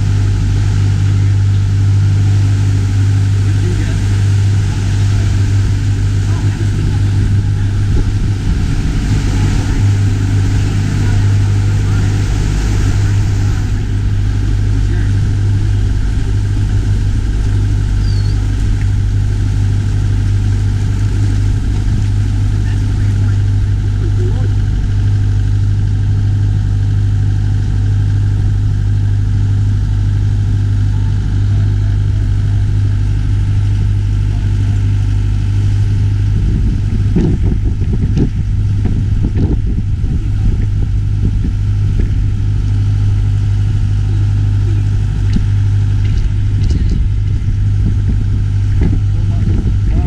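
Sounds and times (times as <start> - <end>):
low bumps: 0.0 - 50.0
motorboat engine drone: 0.0 - 50.0
water rushing past hull: 0.0 - 50.0.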